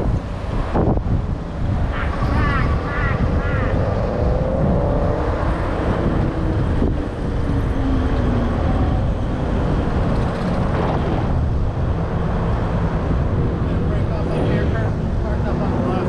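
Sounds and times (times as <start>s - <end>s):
road noise: 0.0s - 16.0s
wind buffeting microphone: 0.0s - 16.0s.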